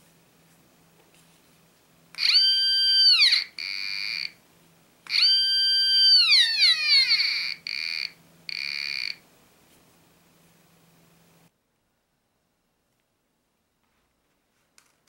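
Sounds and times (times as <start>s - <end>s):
metal detector tone changing pitch: 2.2s - 4.4s, 5.1s - 9.2s.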